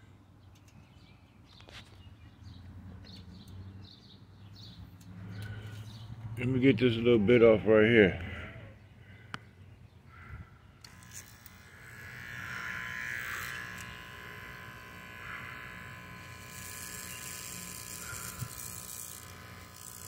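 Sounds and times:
electric hair clippers buzzing: 0:10.8 - 0:20.0.

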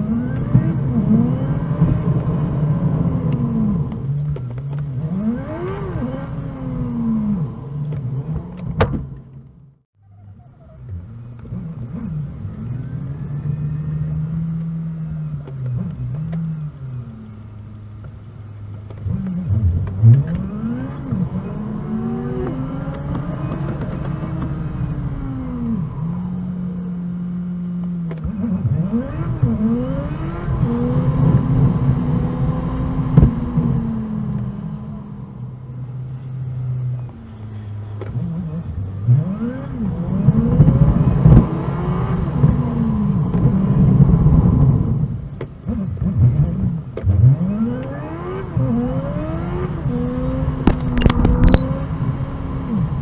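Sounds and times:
sped-up car engine: 0:00.0 - 0:53.0.

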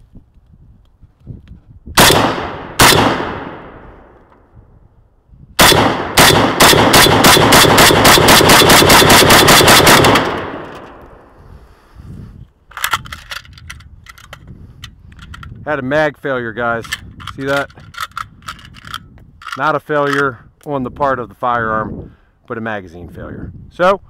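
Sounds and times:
rapid rifle fire: 0:02.0 - 0:03.7, 0:05.6 - 0:10.8
rifle gunshots: 0:02.0 - 0:04.1, 0:05.6 - 0:11.0
rifle metallic clicks and rattles: 0:08.0 - 0:11.2, 0:12.7 - 0:15.6, 0:16.7 - 0:20.4.

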